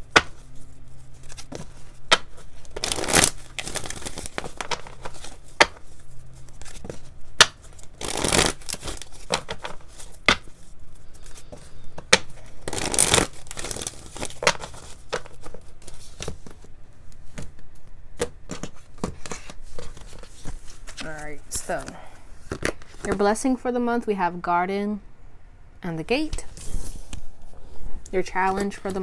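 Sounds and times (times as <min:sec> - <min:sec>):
cards riffling: 0:00.0 - 0:17.5
playing cards snapping: 0:06.6 - 0:10.4, 0:12.1 - 0:15.3.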